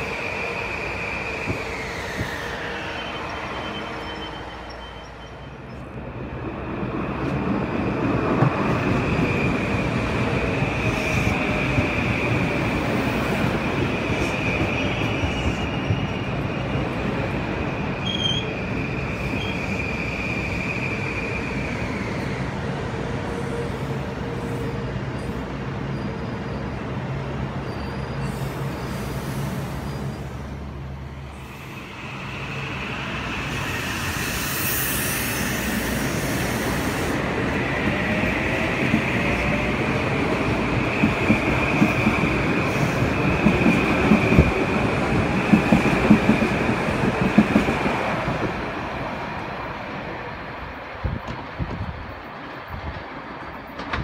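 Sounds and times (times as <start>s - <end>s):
train wheels clicking on rail joints: 40.5s - 48.5s, 51.0s - 54.0s.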